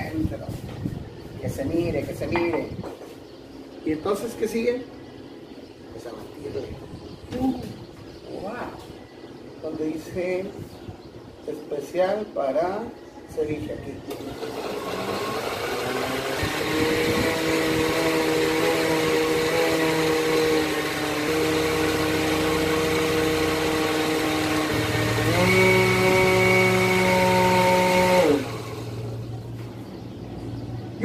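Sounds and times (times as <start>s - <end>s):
electric blender motor running: 14.1s - 29.3s.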